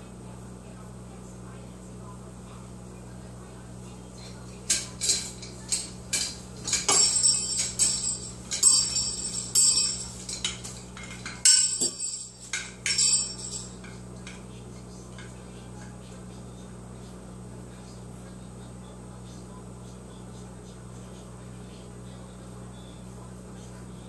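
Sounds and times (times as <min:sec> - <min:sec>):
chain and bell toy rattling: 0:04.2 - 0:14.4.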